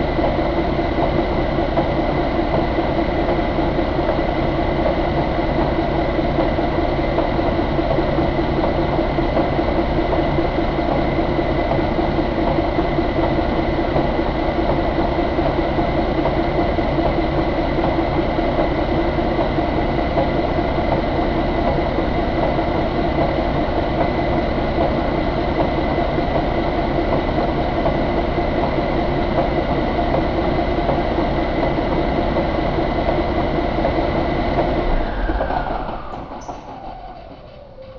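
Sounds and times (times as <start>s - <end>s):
high-pitched whine: 34.4s - 37.9s.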